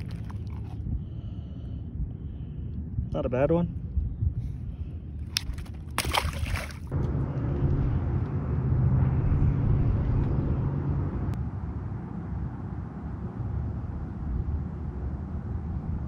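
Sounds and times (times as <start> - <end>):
wind on microphone: 0.0 - 6.9
low engine drone: 0.0 - 16.0.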